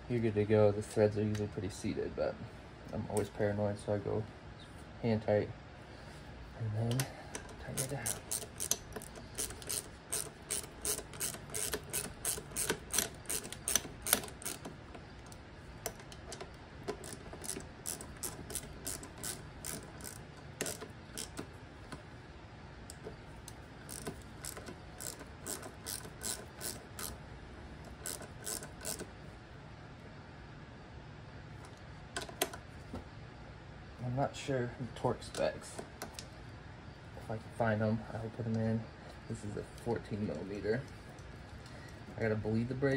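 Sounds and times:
hand ratchet clicking: 6.9s - 21.5s, 23.8s - 27.2s, 27.9s - 29.1s.

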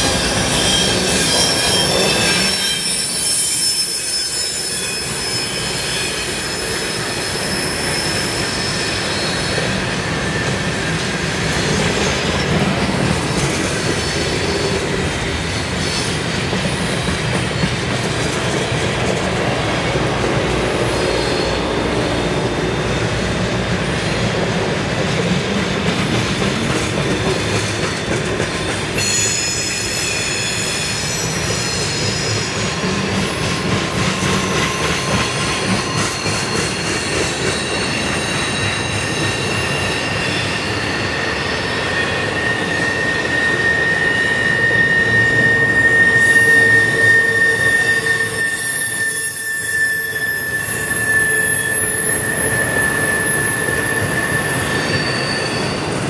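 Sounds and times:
high-pitched wheel squeals: 0.0s - 11.0s, 28.9s - 33.0s, 34.0s - 56.0s
train wheels rumbling and clattering: 0.0s - 49.7s, 50.5s - 56.0s.

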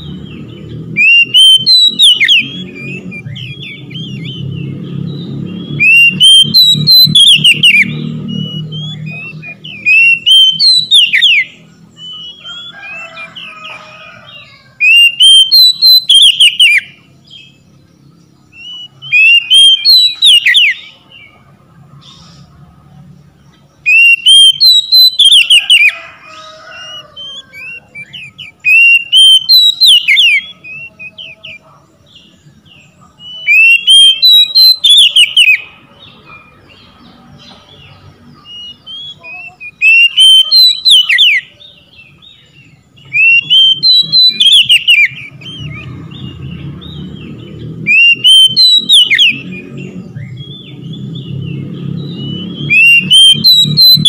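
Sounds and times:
bird singing whistled phrases: 1.0s - 13.2s, 14.8s - 17.0s, 18.5s - 21.0s, 23.8s - 25.9s, 26.8s - 31.6s, 33.2s - 35.7s, 38.4s - 41.8s, 43.0s - 45.9s, 47.9s - 50.7s, 52.0s - 54.0s.

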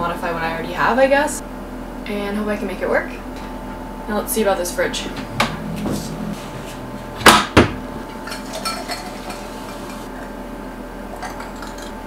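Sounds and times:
drink pouring into glass: 11.1s - 12.0s.

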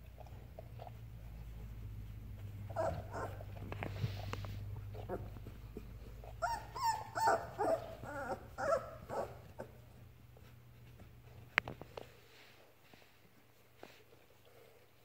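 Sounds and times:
puppy whimpering: 2.7s - 4.3s, 4.9s - 10.0s.

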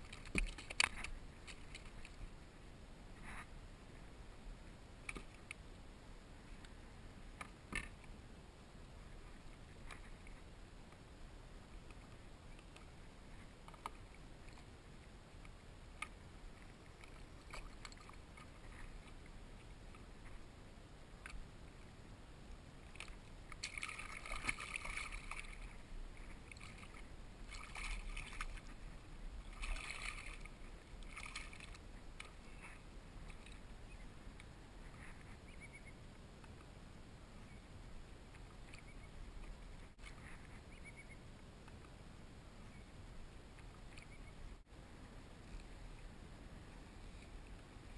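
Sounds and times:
water splashing beside kayak: 0.0s - 2.4s, 11.8s - 20.5s, 21.1s - 35.2s.

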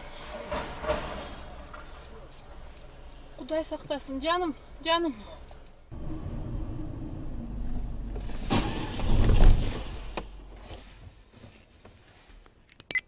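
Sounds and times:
car crash: 0.0s - 2.1s, 6.0s - 10.6s
road and engine rumble: 0.0s - 13.0s.

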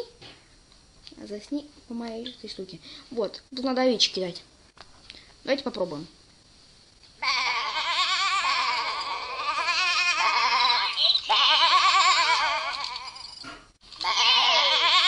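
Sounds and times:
cartoon sheep bleating: 7.2s - 13.0s, 14.0s - 15.0s.

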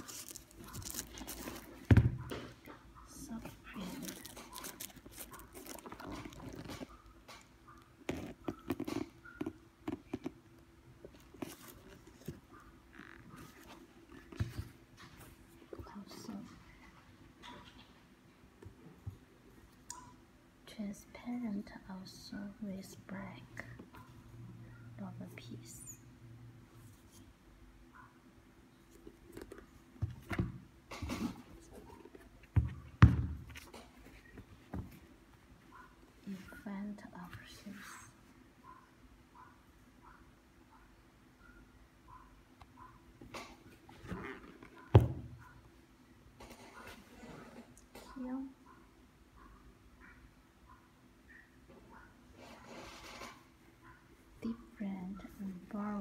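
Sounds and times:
shoes rustling: 0.0s - 2.3s.

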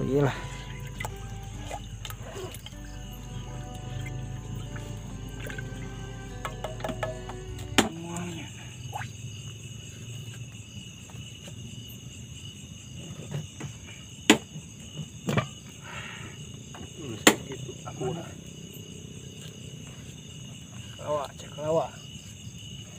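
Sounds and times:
insects chirring: 0.0s - 22.9s
sharp knocks: 6.4s - 8.0s.

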